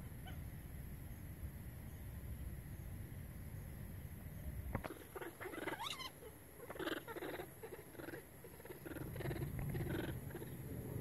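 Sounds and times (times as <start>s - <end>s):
baby monkeys squeaking and crying: 5.0s - 10.5s.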